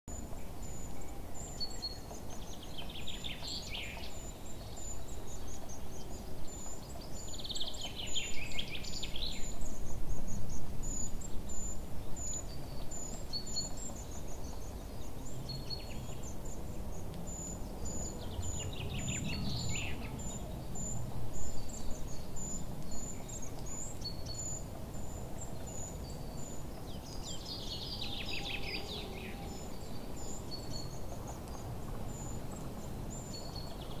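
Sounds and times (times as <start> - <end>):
bird chirping: 0.1 - 34.0
bird trilling song: 0.1 - 34.0
low background noise: 0.1 - 34.0.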